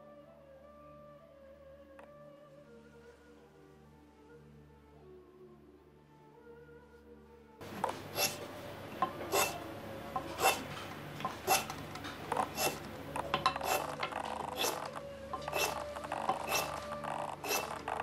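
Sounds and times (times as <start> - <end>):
hand plane scraping wood: 7.8 - 9.6, 10.2 - 18.0.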